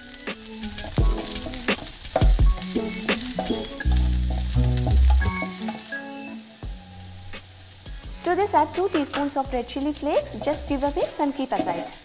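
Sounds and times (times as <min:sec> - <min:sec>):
food sizzling in hot oil: 0:00.0 - 0:12.0
spatula scraping and tapping pan: 0:00.3 - 0:05.9, 0:07.8 - 0:09.4.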